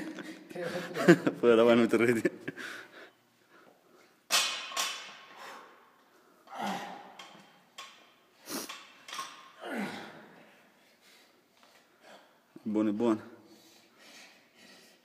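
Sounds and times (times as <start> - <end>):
man breathing hard: 13.4 - 15.0.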